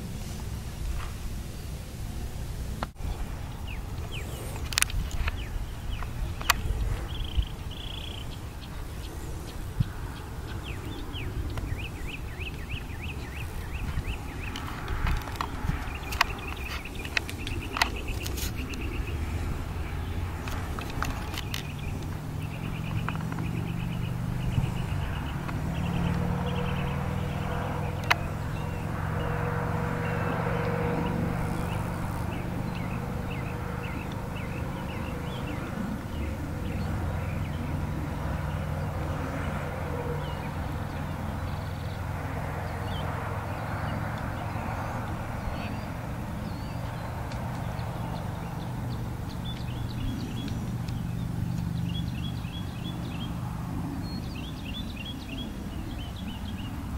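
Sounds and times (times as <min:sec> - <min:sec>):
low engine hum: 0:00.0 - 0:56.9
faint clicks: 0:20.3 - 0:23.7.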